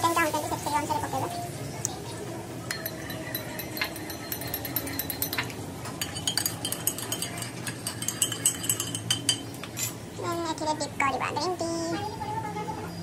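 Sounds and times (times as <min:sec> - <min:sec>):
mugs clinking: 0:02.7 - 0:10.0
spoon clinking in ceramic mug: 0:02.7 - 0:10.0.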